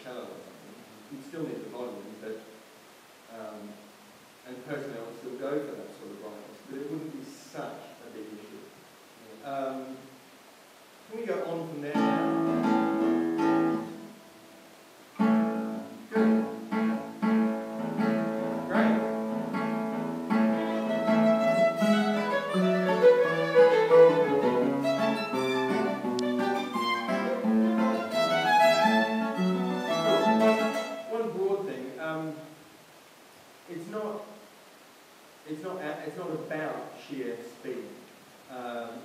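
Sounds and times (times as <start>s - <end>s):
classical guitars: 11.1s - 32.1s
violin: 15.2s - 31.3s.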